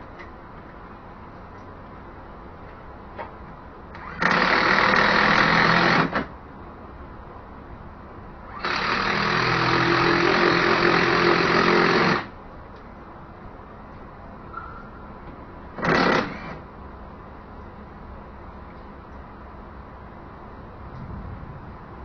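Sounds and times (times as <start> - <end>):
cordless power driver running: 4.0 - 6.2, 8.5 - 12.3.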